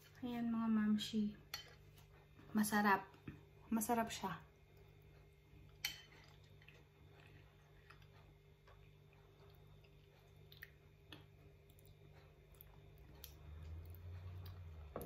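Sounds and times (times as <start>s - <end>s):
low hum: 3.1s - 15.0s
soft chewing and mouth clicks: 4.5s - 15.0s.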